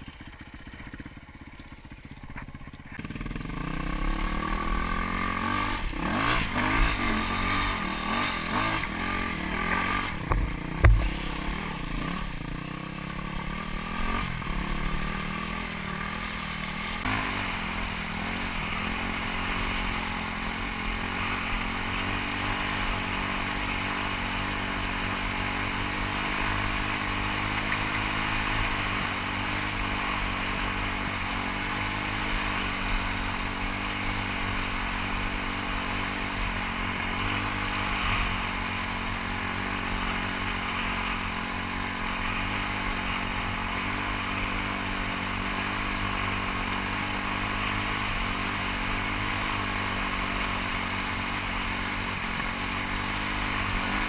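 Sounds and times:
dirt bike engine revving: 0.0s - 54.0s
sharp thump: 10.2s - 11.6s.

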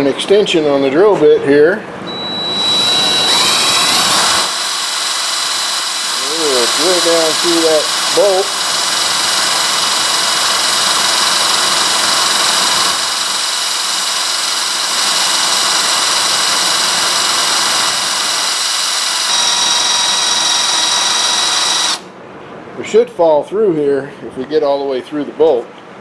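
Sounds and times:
power drill boring through steel: 2.1s - 22.1s.

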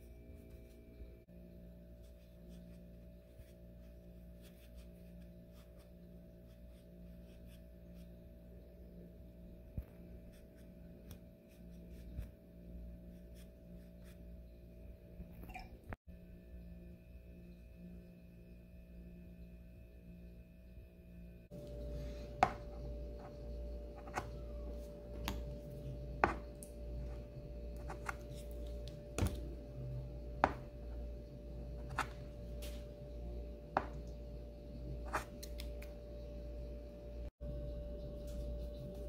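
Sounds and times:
steady humming tone: 0.0s - 39.0s.

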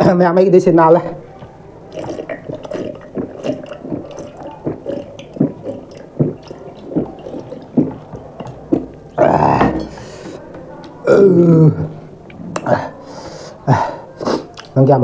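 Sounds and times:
rice squishing by hand: 1.4s - 10.3s
person gulping water: 1.9s - 10.3s.

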